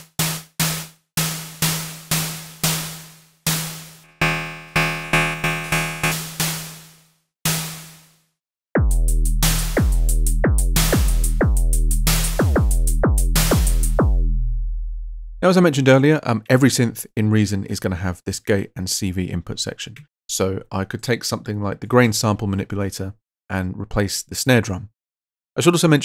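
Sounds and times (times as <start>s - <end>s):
electronic percussion hits: 0.0s - 6.8s, 12.4s - 14.2s
falling-pitch synth strikes: 4.0s - 6.6s
deep sustained bass tone: 4.1s - 6.2s.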